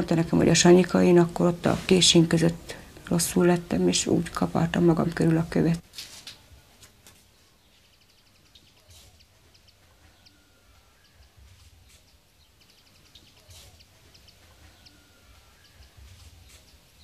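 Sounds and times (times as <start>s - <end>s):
faint outdoor hiss: 0.0s - 17.0s
small birds chirping: 6.4s - 17.0s.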